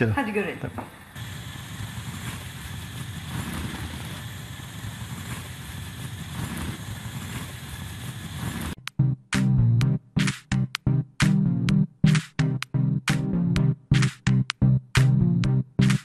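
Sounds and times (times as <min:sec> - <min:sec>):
pot of water boiling: 0:00.0 - 0:08.8
steam escaping: 0:00.0 - 0:08.8
music: 0:08.8 - 0:16.0.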